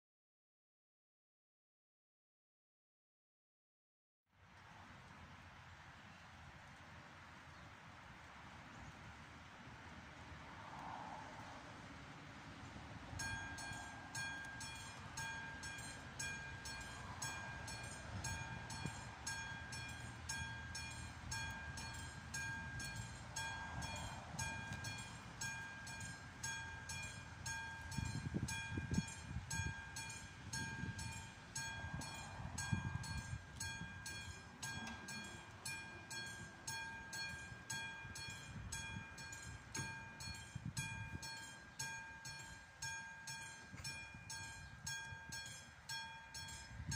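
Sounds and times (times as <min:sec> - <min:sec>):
level crossing bell striking: 0:13.2 - 0:46.8.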